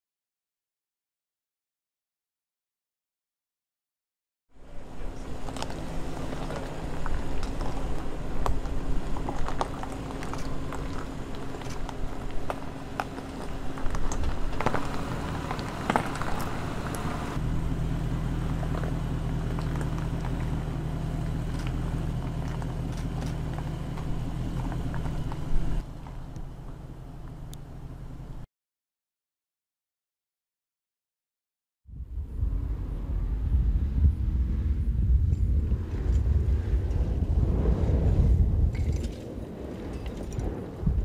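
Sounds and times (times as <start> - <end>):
engine running at low revs: 4.5 - 28.4, 31.9 - 41.0
tyres crunching over gravel: 4.9 - 28.2.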